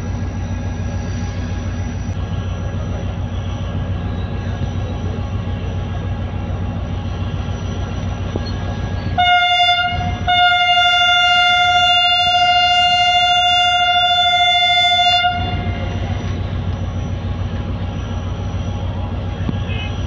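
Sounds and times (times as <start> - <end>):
diesel engine running: 0.0 - 20.0
locomotive horn blast: 8.7 - 16.4.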